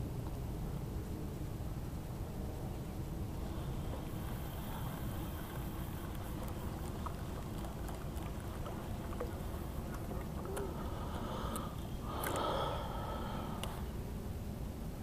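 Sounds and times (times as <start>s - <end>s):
wind rumble on microphone: 0.0s - 12.2s
fishing reel whirring: 3.3s - 13.9s.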